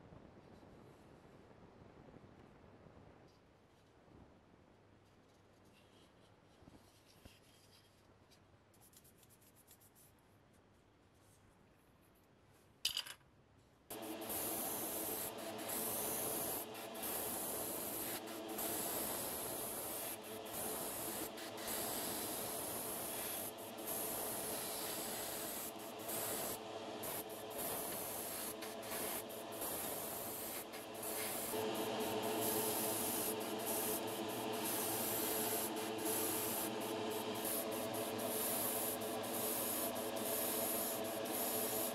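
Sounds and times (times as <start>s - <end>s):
paint spraying hiss: 13.9s - 41.9s.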